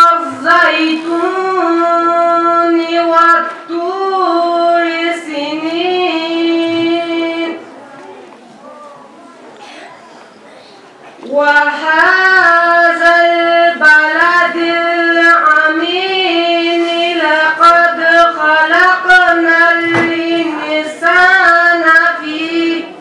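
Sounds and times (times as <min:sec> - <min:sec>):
person reciting melodically: 0:00.0 - 0:09.1, 0:11.2 - 0:23.0.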